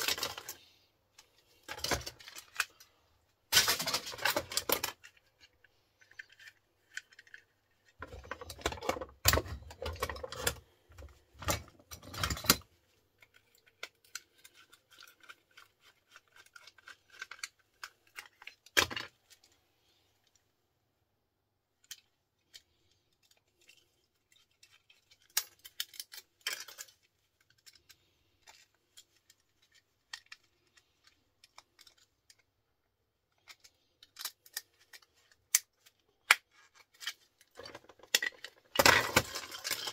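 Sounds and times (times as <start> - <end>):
electrical parts clicking and rattling: 0.0 - 2.9, 3.5 - 19.6, 33.3 - 39.9.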